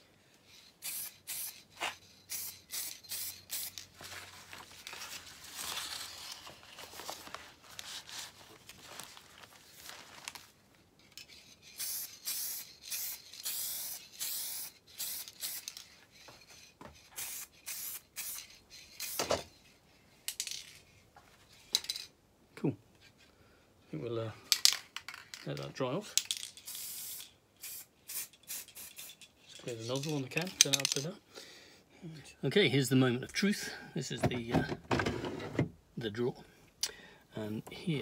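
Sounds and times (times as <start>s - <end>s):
spray can hissing: 0.8s - 3.9s, 11.7s - 15.9s, 17.2s - 19.3s, 26.6s - 29.2s.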